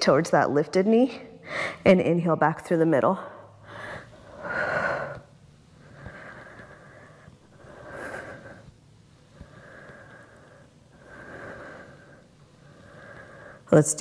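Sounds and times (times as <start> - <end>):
woman breathing hard: 1.4 - 1.8, 3.2 - 13.7.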